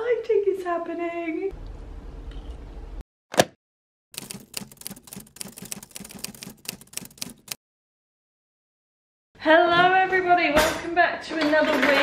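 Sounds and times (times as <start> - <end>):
typewriter keys clacking: 4.2 - 7.6.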